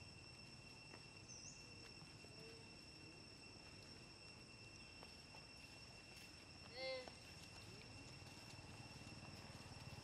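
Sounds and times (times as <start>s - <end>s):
high-pitched insect drone: 0.0s - 10.0s.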